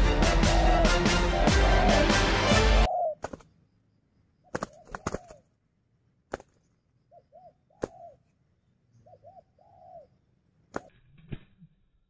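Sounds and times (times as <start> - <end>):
doves cooing: 0.0 - 3.4, 4.5 - 5.5, 7.1 - 8.3, 9.0 - 10.2.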